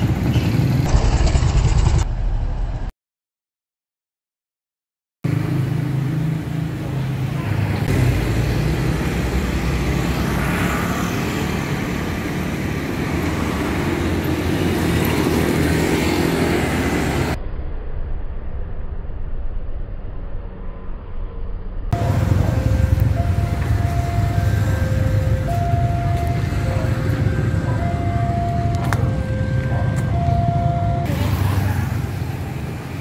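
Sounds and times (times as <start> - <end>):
motorbike and car engines passing: 0.0 - 2.1, 5.3 - 17.4, 21.9 - 33.0
road noise: 0.0 - 2.9, 5.2 - 33.0.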